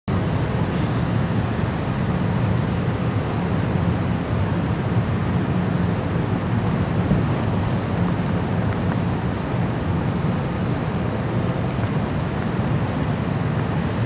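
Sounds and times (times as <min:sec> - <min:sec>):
city street rumble: 0:00.1 - 0:14.0.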